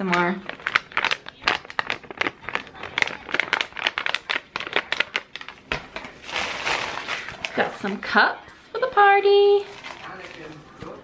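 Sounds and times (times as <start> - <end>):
treat pouch crinkling: 0.4 - 7.7, 9.6 - 11.0.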